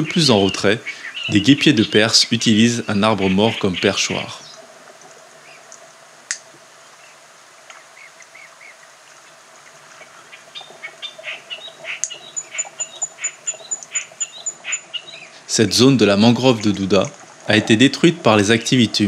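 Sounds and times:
birds chirping: 0.0s - 6.0s, 6.7s - 19.0s
fast high ticks: 11.6s - 14.9s.

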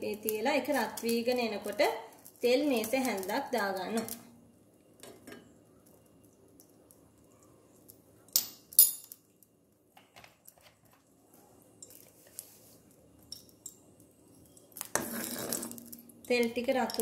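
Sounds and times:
metal spoon clinking on wok: 16.7s - 17.0s.

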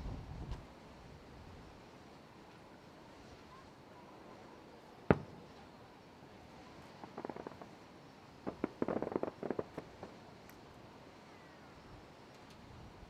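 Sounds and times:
fireworks popping: 5.1s - 5.8s, 6.7s - 10.7s.

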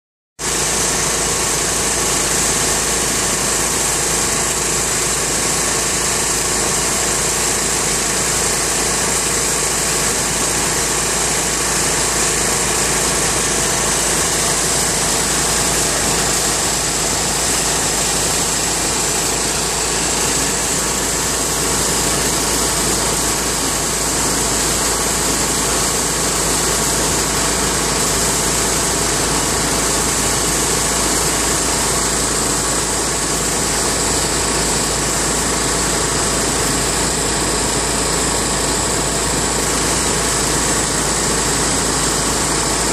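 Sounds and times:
blower motor hum: 0.4s - 42.9s
compressed air hissing: 11.0s - 24.0s.

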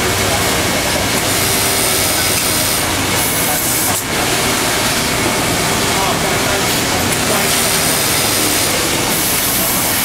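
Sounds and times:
overlock sewing machine running: 0.0s - 10.0s.

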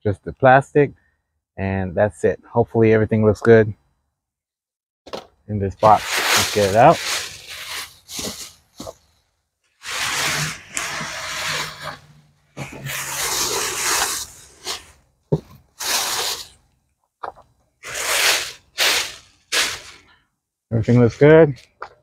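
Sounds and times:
plastic bag rustling: 5.8s - 9.2s, 9.8s - 16.6s, 17.3s - 20.1s.

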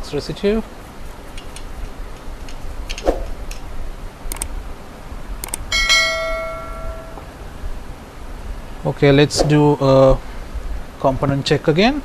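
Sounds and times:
mouse clicks: 4.3s - 4.5s, 5.4s - 5.6s
bell chime: 5.7s - 7.2s.

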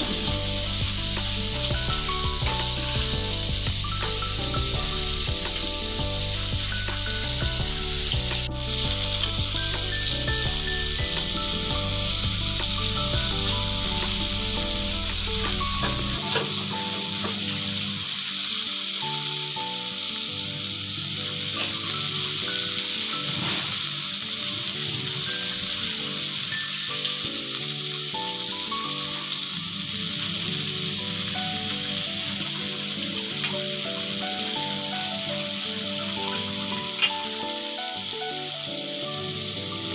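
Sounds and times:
oil sizzling while deep-frying: 0.0s - 39.9s.

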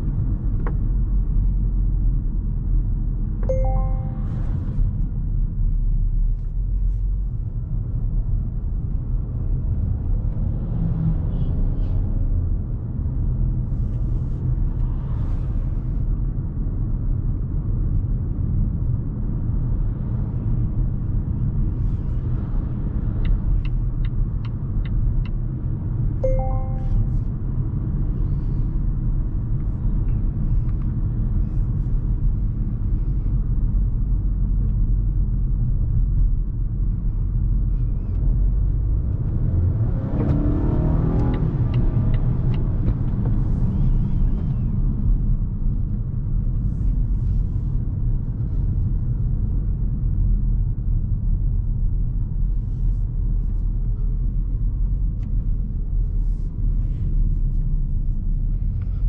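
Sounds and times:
car cabin road rumble: 0.0s - 59.0s.

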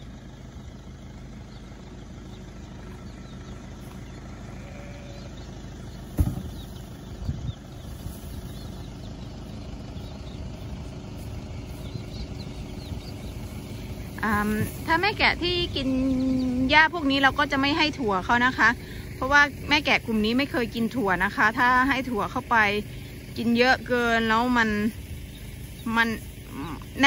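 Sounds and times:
car engine humming: 0.0s - 27.0s
faint birds chirping: 0.0s - 27.0s
sharp thump: 6.1s - 6.7s.

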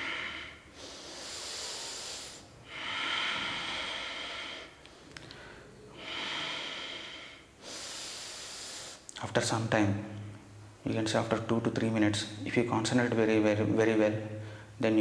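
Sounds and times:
man breathing deeply: 0.0s - 9.1s.

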